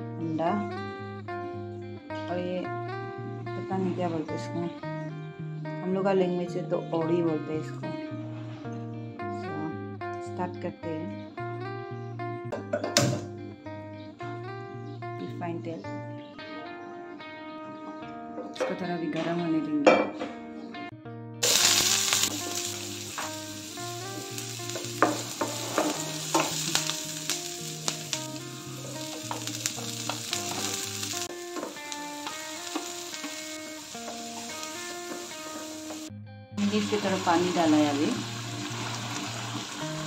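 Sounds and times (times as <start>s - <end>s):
guitar music with held notes: 0.0s - 40.0s
onions sizzling in oil: 21.4s - 40.0s.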